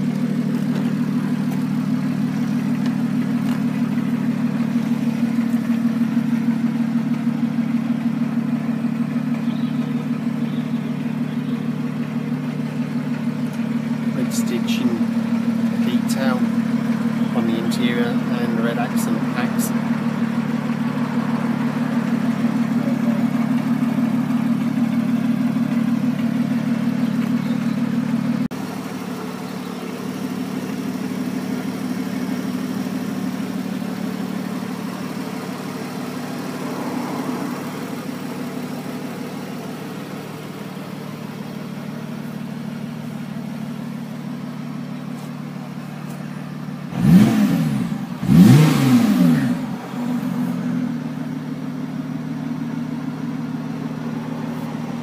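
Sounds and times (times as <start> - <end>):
car engine idling: 0.0 - 55.0
engine revving: 12.8 - 44.2, 45.2 - 55.0.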